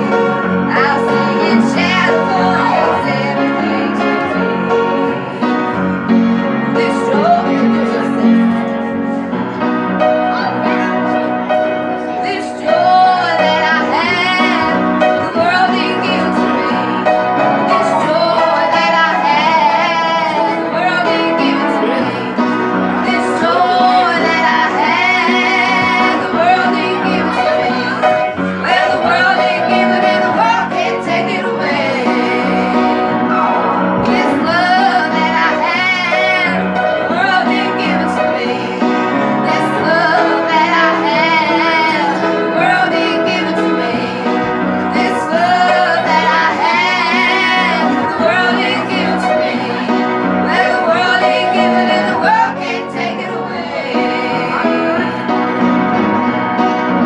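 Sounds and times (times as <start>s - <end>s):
women singing gospel: 0.0s - 8.9s, 12.0s - 55.6s
upright piano: 0.0s - 57.0s.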